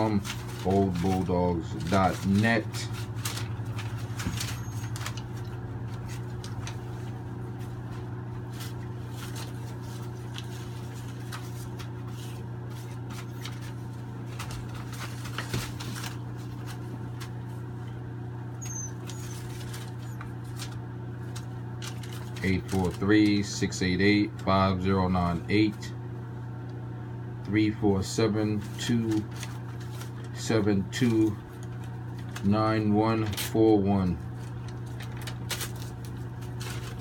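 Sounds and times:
low electrical hum: 0.0s - 37.0s
puppies scratching on newspaper: 0.0s - 37.0s.

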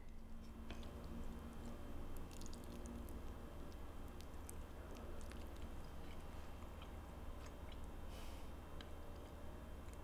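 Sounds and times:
wet chewing sounds: 0.4s - 8.0s.

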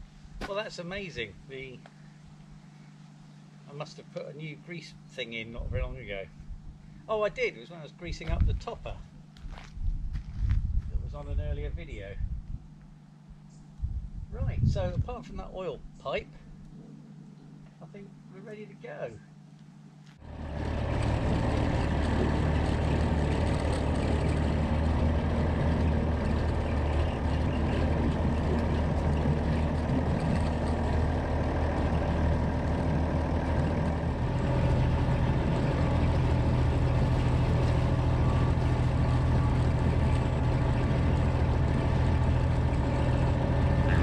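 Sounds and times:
tractor diesel engine running: 20.2s - 44.0s.

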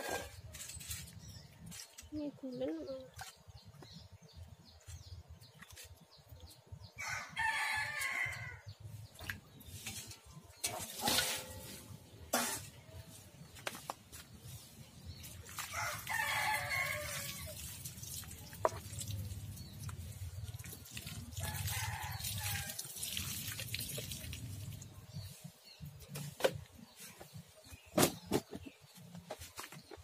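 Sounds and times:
water pouring and splashing: 8.9s - 12.8s, 14.6s - 26.4s
drips and clinks: 15.8s - 24.9s.

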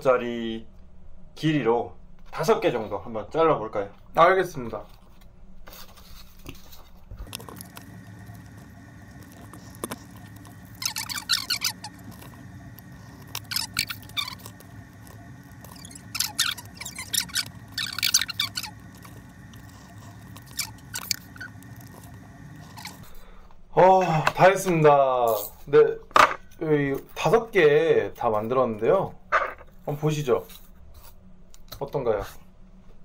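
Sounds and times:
faint steady hum: 0.0s - 33.0s
knife squeaking through foam: 5.9s - 23.2s.

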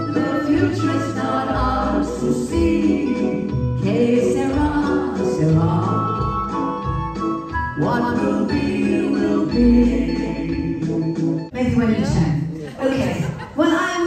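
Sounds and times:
instrumental accompaniment with bass: 0.0s - 12.4s
woman singing into microphone: 0.1s - 6.4s.

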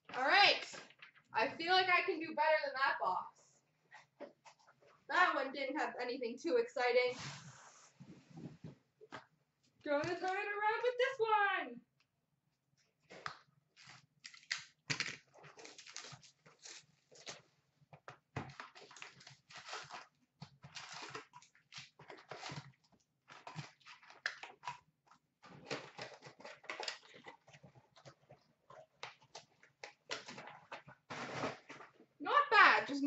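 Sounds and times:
card wrappers rustling and crinkling: 13.8s - 17.4s, 18.4s - 22.8s.

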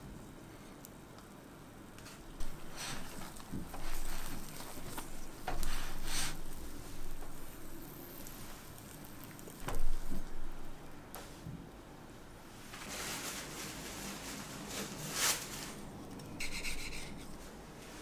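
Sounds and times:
food sizzling in a pan: 2.4s - 10.2s.

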